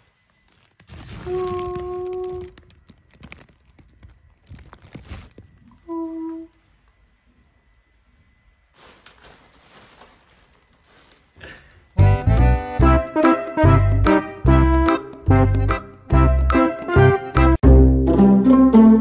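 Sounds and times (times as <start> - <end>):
fabric rustling and crinkling: 0.0 - 7.1, 8.6 - 12.0.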